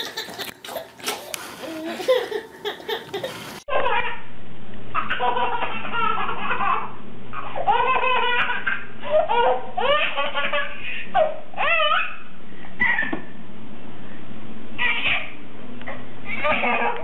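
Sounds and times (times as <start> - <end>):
baby laughing: 0.0 - 4.2, 5.0 - 12.2.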